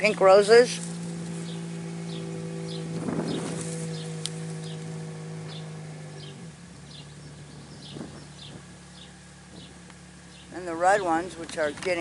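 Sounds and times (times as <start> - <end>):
steady motor hum: 0.0 - 12.0
brief rustle: 3.0 - 4.4.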